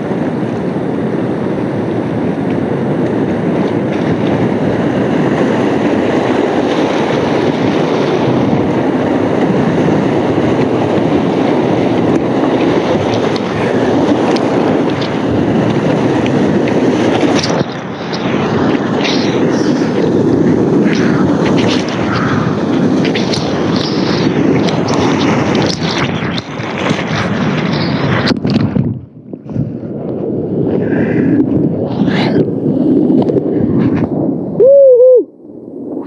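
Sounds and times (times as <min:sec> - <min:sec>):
whitewater rapid roaring: 0:00.0 - 0:28.6.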